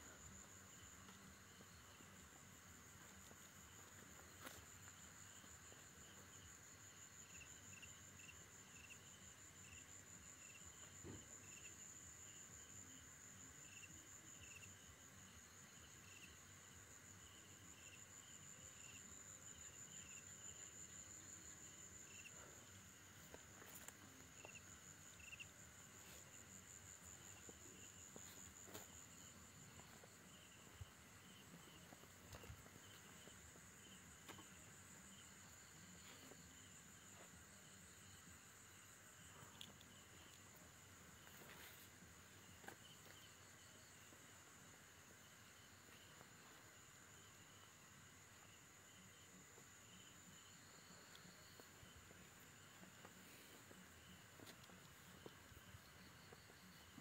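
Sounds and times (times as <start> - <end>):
lower pulsing insect chirp: 0.0 - 57.0
high-pitched cricket trill: 24.3 - 41.9.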